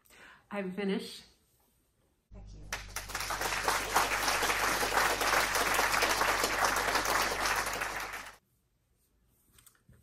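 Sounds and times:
audience applause: 2.7s - 8.4s.

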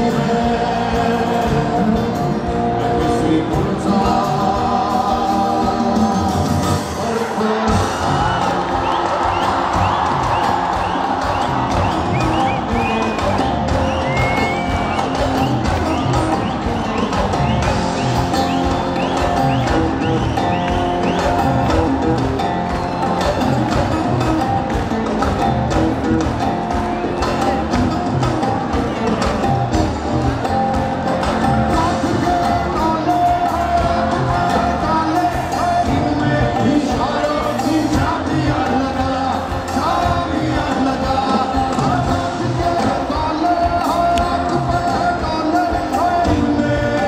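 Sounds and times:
people singing long notes: 0.0s - 22.0s
bass guitar: 0.0s - 47.0s
live rock band: 0.0s - 47.0s.

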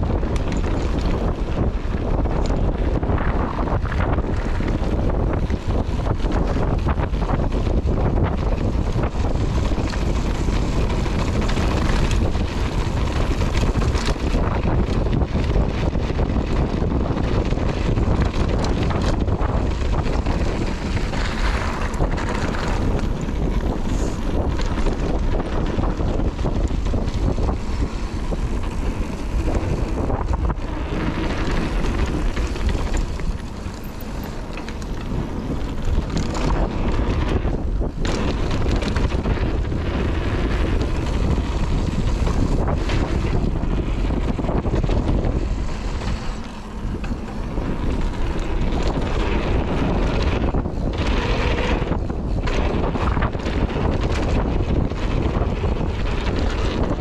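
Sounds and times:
bike rattling over bumps: 0.0s - 57.0s
tyres on dirt trail: 0.0s - 57.0s
wind over microphone: 0.0s - 57.0s.

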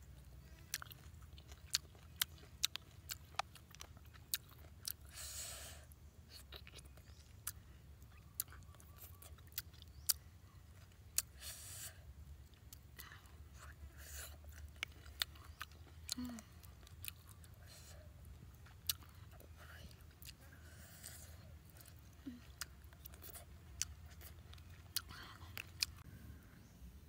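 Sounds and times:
chewing and crunching snail meat: 0.0s - 26.1s.

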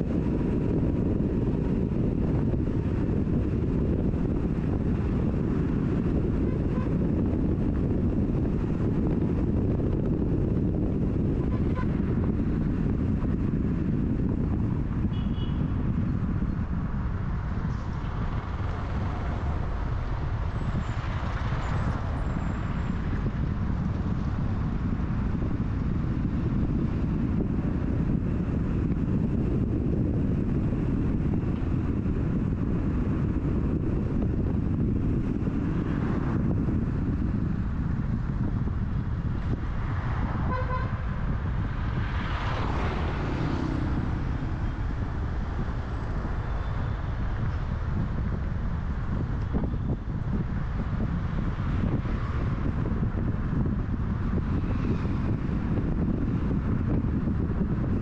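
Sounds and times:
car driving rumble: 0.0s - 58.0s
passing traffic rush: 0.0s - 58.0s
wind and road noise: 0.0s - 58.0s
vehicle horn toot: 6.4s - 7.0s, 11.4s - 12.0s, 15.1s - 15.7s, 40.4s - 41.1s.

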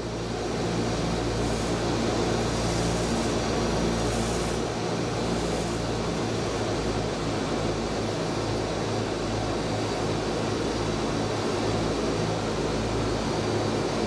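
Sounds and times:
aircraft engines droning: 0.0s - 14.0s
rushing hiss: 0.1s - 6.8s.

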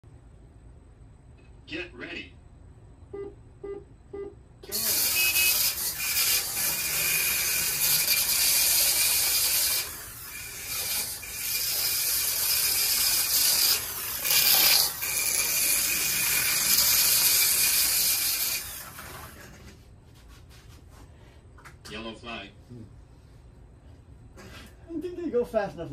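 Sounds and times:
slot cars buzzing: 4.6s - 19.6s.

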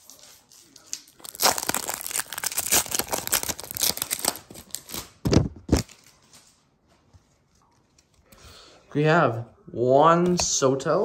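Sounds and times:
foil wrapper tearing and crinkling: 0.7s - 6.2s.

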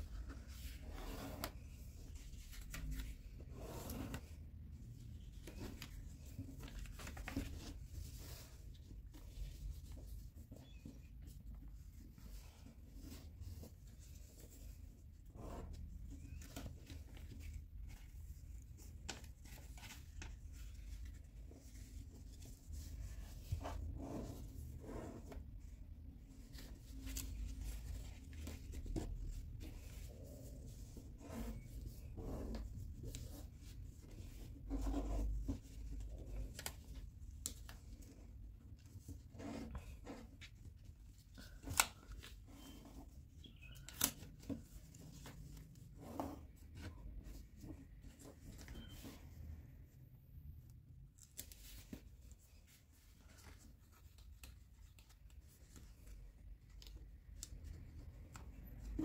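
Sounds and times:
paper rustling and creasing: 0.0s - 49.4s, 51.0s - 59.0s.

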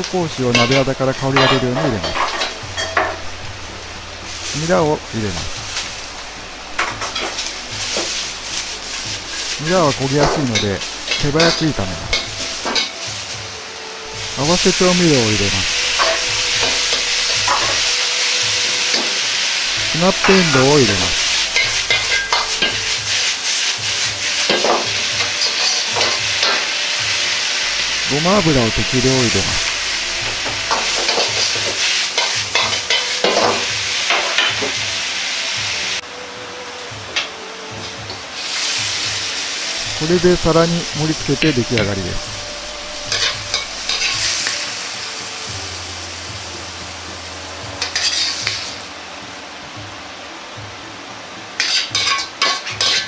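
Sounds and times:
vegetables sizzling in a wok: 0.0s - 53.0s
metal ladle scraping a wok: 0.6s - 4.6s, 5.5s - 13.3s, 15.6s - 28.2s, 29.3s - 34.7s, 42.2s - 44.8s, 47.8s - 48.8s, 51.6s - 53.0s.

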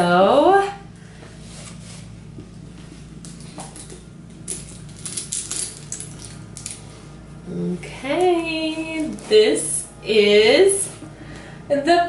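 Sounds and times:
metal chain clinking: 3.6s - 6.9s.

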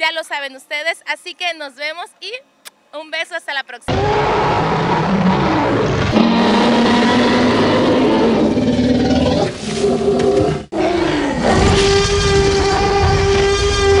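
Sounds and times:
dinosaur roaring: 3.9s - 14.0s.

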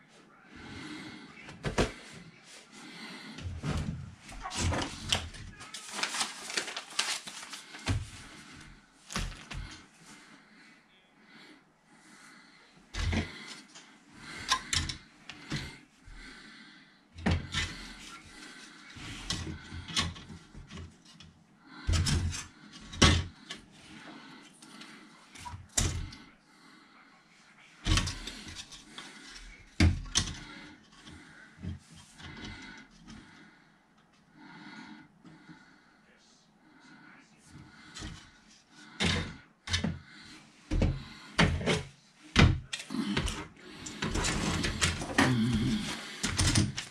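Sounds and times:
plastic parts clicking and knocking: 13.0s - 15.8s, 19.0s - 21.3s, 21.9s - 23.7s, 25.4s - 26.2s, 27.8s - 33.2s, 39.0s - 40.0s, 40.7s - 46.9s.

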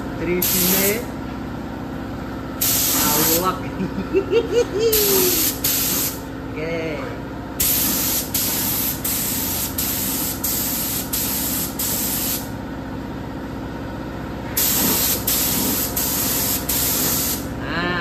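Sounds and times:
spray gun hissing: 2.6s - 3.4s, 4.9s - 6.2s, 7.6s - 12.5s, 14.6s - 17.4s.

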